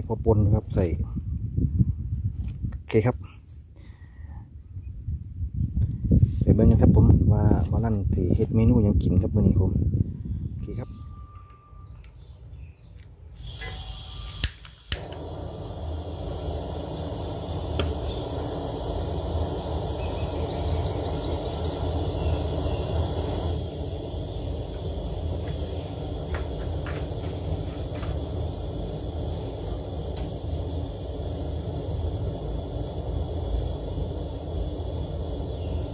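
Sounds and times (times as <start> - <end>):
burner igniter clicks: 13.4 - 35.9
gas flame rushing: 13.4 - 35.9
gas hissing: 13.4 - 35.9.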